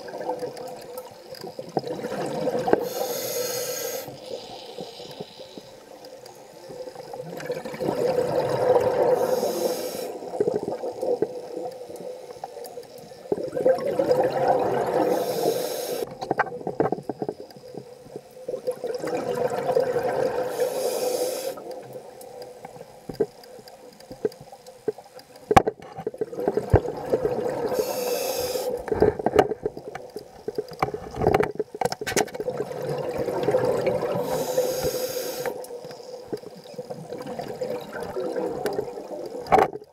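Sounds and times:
regulator hissing: 2.8 - 6.6, 9.2 - 10.3, 15.1 - 16.1, 20.5 - 21.7, 27.7 - 28.9, 34.2 - 36.2.

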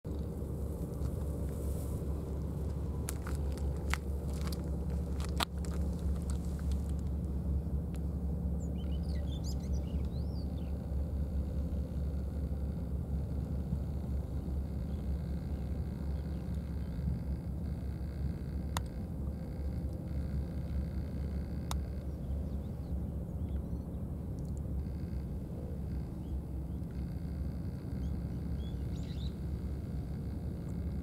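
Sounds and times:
low outdoor rumble: 0.0 - 31.0
sharp clicks: 21.6 - 22.0.

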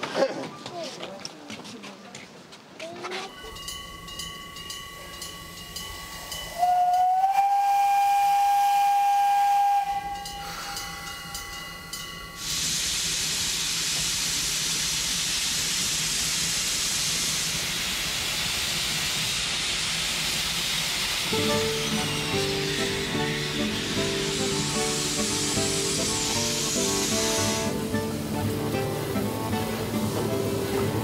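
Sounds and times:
steam hissing from cylinder cocks: 3.5 - 31.0
steam whistle blast: 6.6 - 10.8, 21.4 - 28.1.

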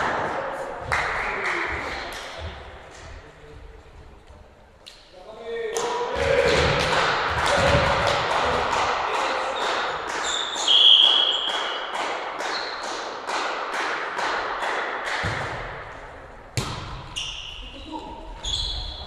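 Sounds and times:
rhythmic clapping: 0.8 - 3.1, 6.6 - 15.3
whistle blast: 10.3 - 11.7.

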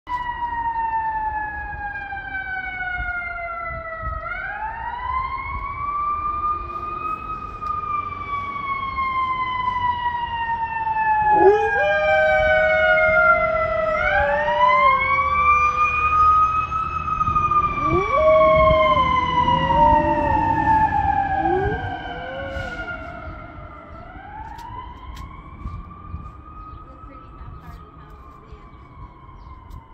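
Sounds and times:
fire truck siren wailing: 0.1 - 29.9
dog howling: 11.3 - 15.4, 17.8 - 23.0.

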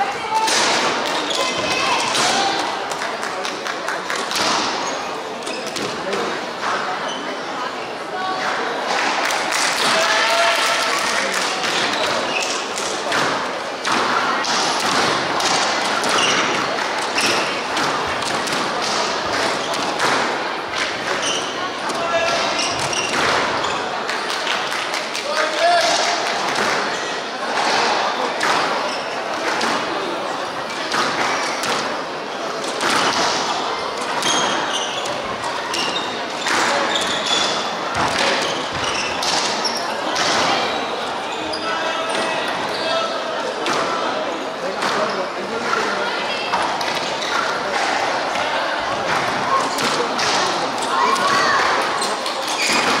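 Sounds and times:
squash ball hitting rackets and wall: 13.0 - 23.6, 30.8 - 32.0, 32.6 - 40.6, 48.9 - 51.8.

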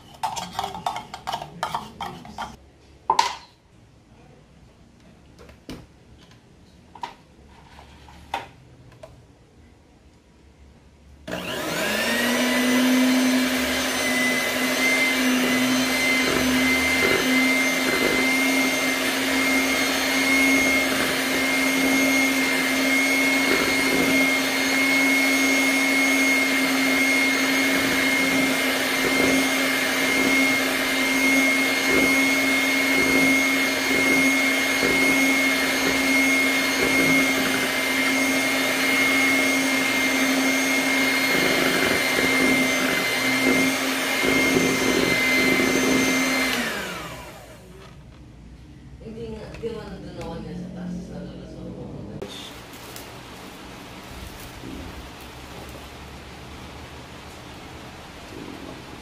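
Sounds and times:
electric mixer motor whine: 11.3 - 48.0.

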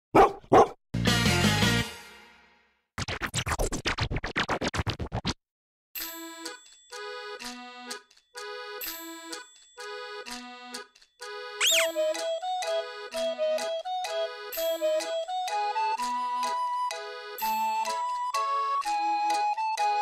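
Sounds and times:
light music of held chords: 6.0 - 20.0.

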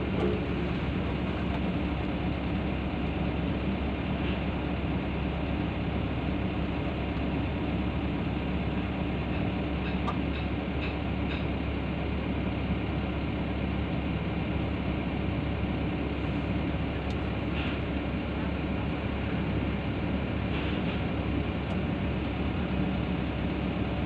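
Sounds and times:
excavator diesel engine idling: 0.0 - 24.0.

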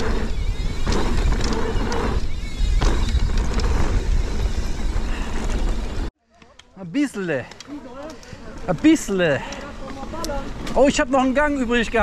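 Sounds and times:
bike clattering over bumps: 0.0 - 6.1
bike rattling: 0.0 - 6.1, 7.2 - 12.0
tyres rolling over dirt: 0.0 - 6.1
wind rushing over microphone: 0.0 - 6.1.

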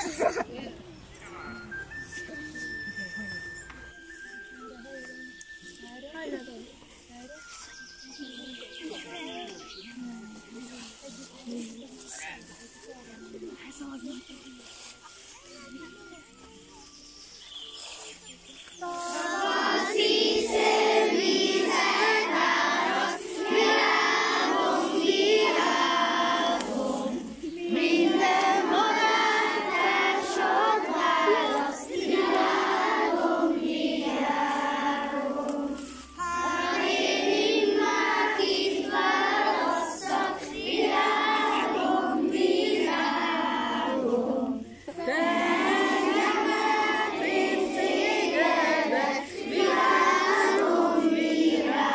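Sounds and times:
children singing in unison: 18.8 - 51.9.

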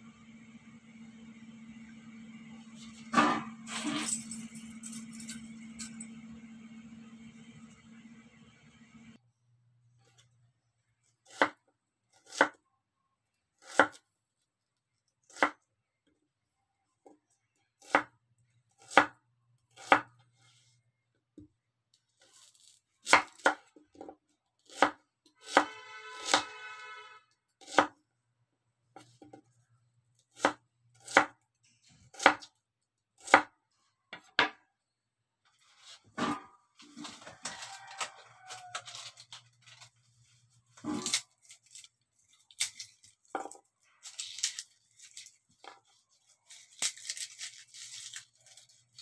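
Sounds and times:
knife cutting onion on board: 11.2 - 12.6, 13.6 - 14.0, 15.3 - 15.6, 17.8 - 18.2, 18.8 - 20.5, 22.2 - 26.7, 27.6 - 28.0, 30.2 - 32.5, 33.2 - 33.5, 40.7 - 49.0.

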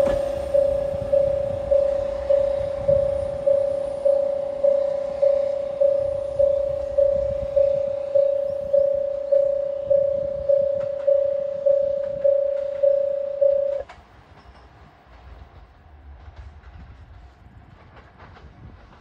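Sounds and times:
level crossing bell ringing: 0.0 - 13.8
diesel railcar rumble: 0.0 - 19.0.

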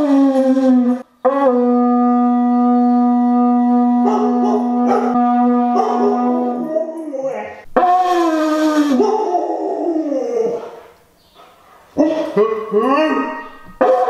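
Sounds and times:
dog howling: 0.0 - 10.8, 12.0 - 14.0
conch shell horn blowing: 0.8 - 6.8.

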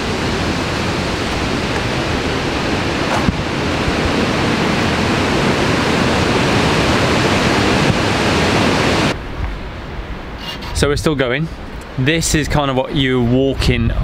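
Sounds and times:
loud rushing noise: 0.0 - 10.4.

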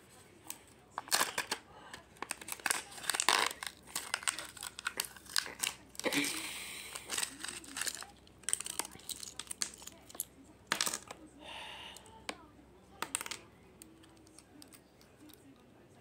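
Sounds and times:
wrapper crinkling: 0.5 - 11.1.

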